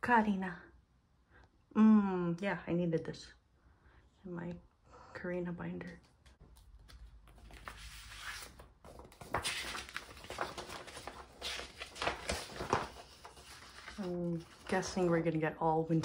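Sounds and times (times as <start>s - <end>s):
paper and packaging rustling: 6.5s - 16.0s.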